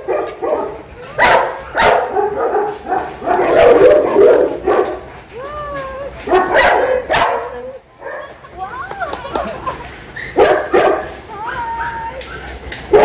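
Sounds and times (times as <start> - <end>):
dogs barking: 0.0 - 5.3, 6.2 - 8.4, 10.1 - 13.0.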